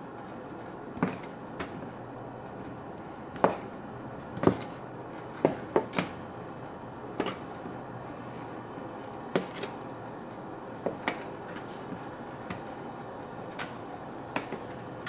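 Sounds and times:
knife chopping on cutting board: 0:01.0 - 0:01.9, 0:03.3 - 0:03.7, 0:04.3 - 0:06.2.

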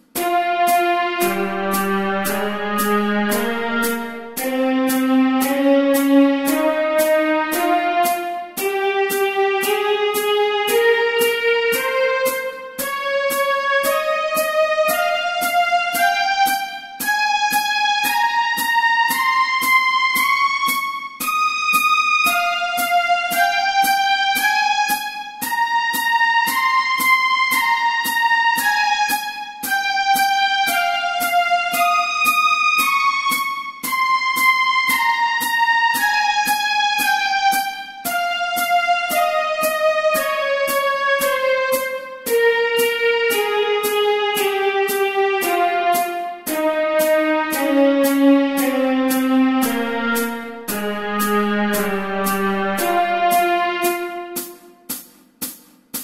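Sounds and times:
synthesized violin scale: 0:01.2 - 0:05.4, 0:46.7 - 0:54.7
metronome clicks: 0:48.6 - 0:53.7.

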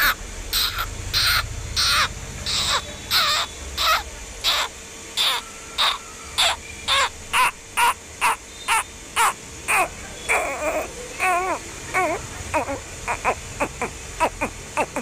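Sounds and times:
duckling peeping: 0:00.0 - 0:10.8.

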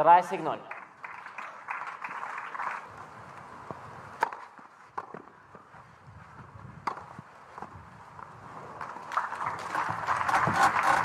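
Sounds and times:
spectators applauding: 0:00.7 - 0:02.9, 0:09.1 - 0:11.0
sharp knocks on court: 0:04.2 - 0:05.3.

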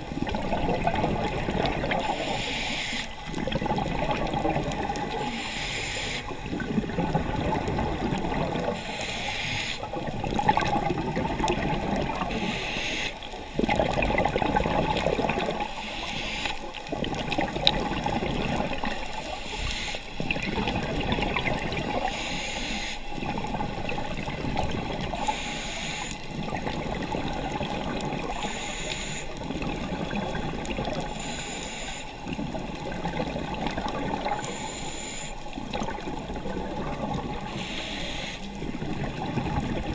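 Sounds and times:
underwater bubbling gurgle: 0:00.0 - 0:39.9
regulator breath hiss: 0:02.0 - 0:03.2, 0:05.2 - 0:06.3, 0:08.8 - 0:09.9, 0:12.3 - 0:13.2, 0:15.7 - 0:16.6, 0:19.2 - 0:20.2, 0:22.0 - 0:23.1, 0:25.2 - 0:26.2, 0:28.3 - 0:29.4, 0:31.1 - 0:32.2, 0:34.4 - 0:35.5, 0:37.4 - 0:38.6.

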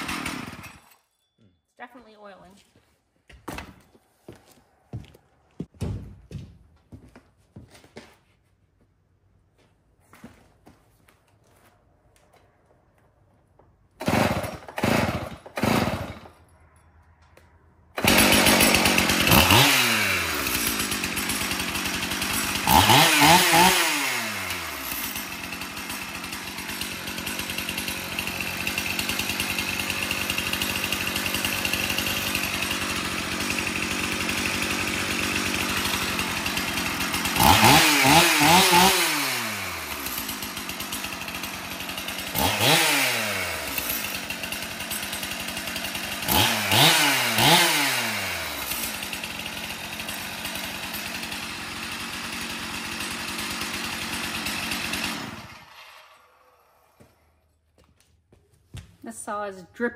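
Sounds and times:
chainsaw starting and revving: 0:00.0 - 0:01.0, 0:13.9 - 0:16.6, 0:17.3 - 0:57.6.

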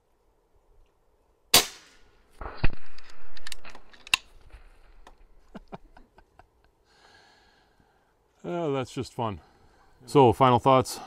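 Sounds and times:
air rifle shot: 0:01.5 - 0:03.9.

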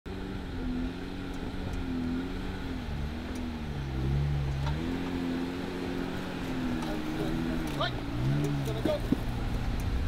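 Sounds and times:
faint ticks: 0:09.6 - 0:10.0.

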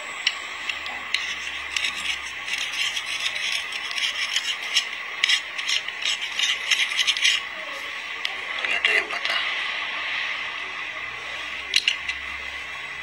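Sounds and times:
irregular scraping and rattling clicks: 0:00.2 - 0:07.5.

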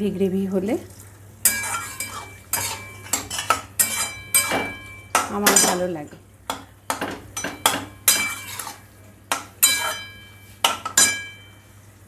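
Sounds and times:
spatula clanking in metal wok: 0:01.4 - 0:05.9, 0:06.5 - 0:11.6.

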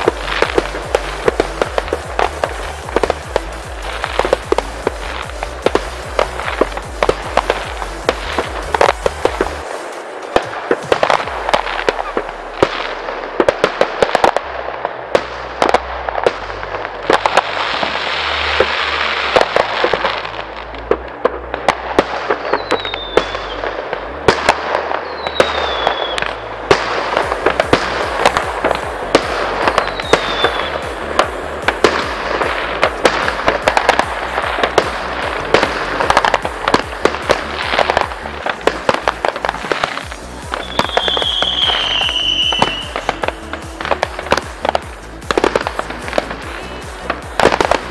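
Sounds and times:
electronic dance music: 0:00.0 - 0:14.4, 0:25.9 - 0:47.9
falling whistles of fireworks: 0:00.0 - 0:47.9
fireworks bangs and crackles: 0:00.0 - 0:47.9.

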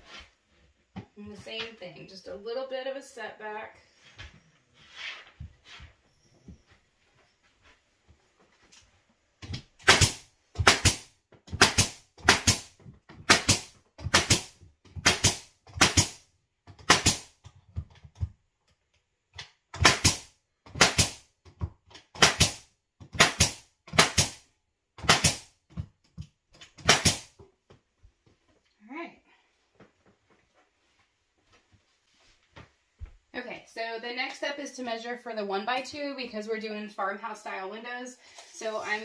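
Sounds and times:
pneumatic nail gun firing: 0:09.8 - 0:12.7, 0:13.3 - 0:16.2, 0:16.8 - 0:17.3, 0:19.8 - 0:21.2, 0:22.2 - 0:22.6, 0:23.2 - 0:24.4, 0:25.0 - 0:25.5, 0:26.8 - 0:27.3.

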